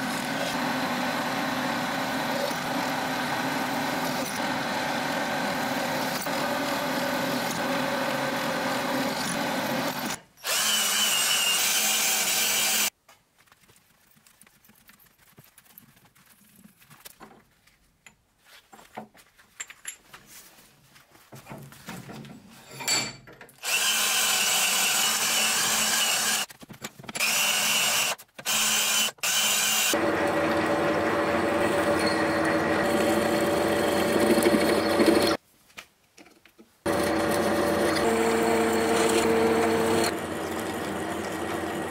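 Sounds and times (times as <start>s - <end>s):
drill boring through metal: 0.0s - 12.9s, 23.6s - 26.5s, 27.2s - 35.4s, 36.9s - 41.9s.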